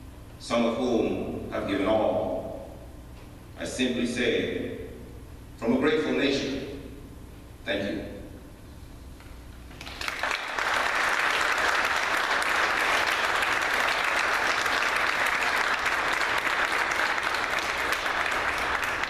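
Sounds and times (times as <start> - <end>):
audience applauding: 9.7 - 19.0.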